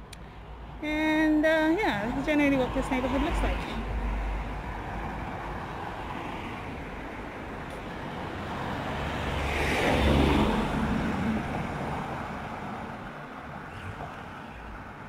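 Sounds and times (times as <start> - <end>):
vehicle driving past: 8.1 - 15.0.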